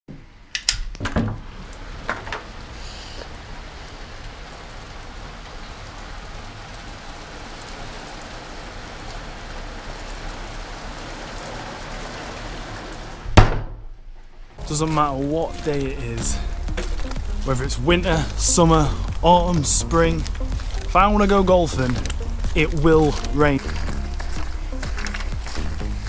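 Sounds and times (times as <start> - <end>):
door clicks: 0.5 - 2.5
rain on wet tarmac: 1.4 - 13.4, 14.6 - 26.0
sharp knock: 13.4 - 13.9.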